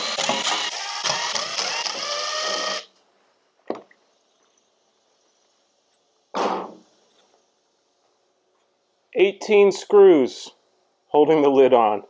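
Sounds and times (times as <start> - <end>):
cordless drill running: 0.0 - 2.9.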